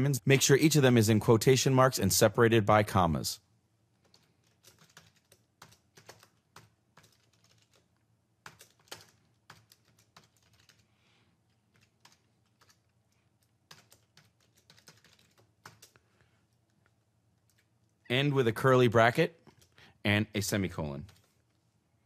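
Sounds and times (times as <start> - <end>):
faint typing on keyboard: 3.9 - 18.0, 19.4 - 20.0, 20.8 - 21.6.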